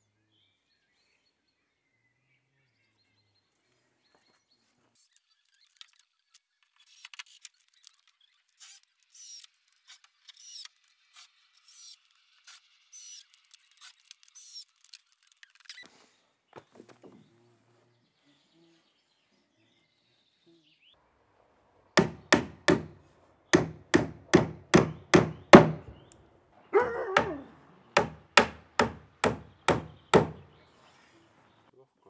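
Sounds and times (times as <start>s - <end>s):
hammer striking wood: 22.0s - 23.0s, 23.6s - 26.0s, 27.2s - 27.4s, 28.0s - 30.5s.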